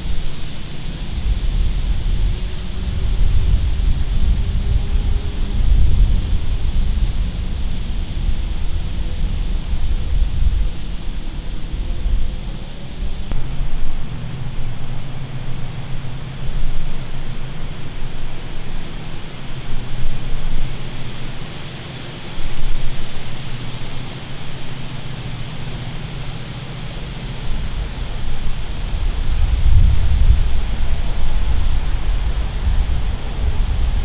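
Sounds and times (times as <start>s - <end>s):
outdoor hiss: 0.0s - 34.0s
wind buffeting microphone: 0.0s - 34.0s.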